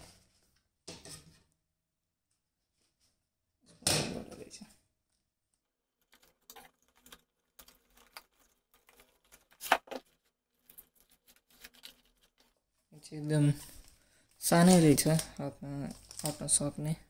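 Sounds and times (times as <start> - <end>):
cardboard rustling and scraping: 8.6 - 12.6.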